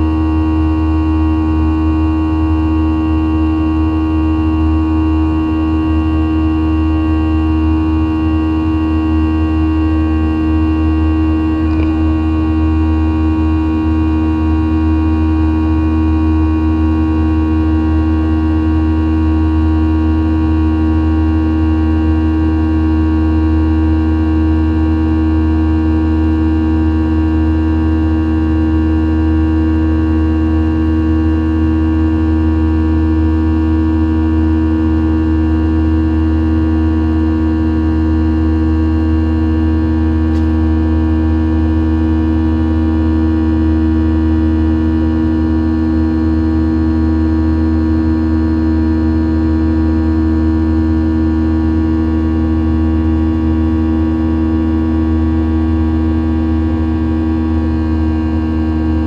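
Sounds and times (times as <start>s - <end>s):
jet engines rumbling and whining: 9.4s - 13.6s.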